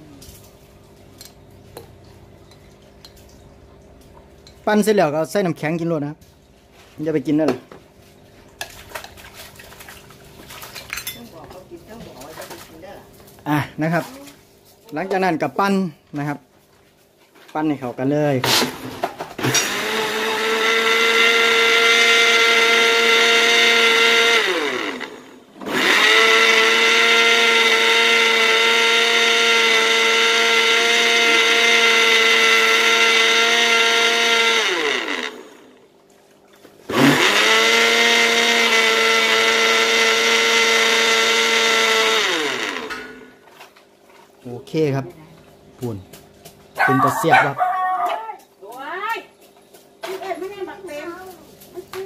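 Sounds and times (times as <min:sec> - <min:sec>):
blender motor whine: 0:19.4 - 0:35.9, 0:36.8 - 0:43.4.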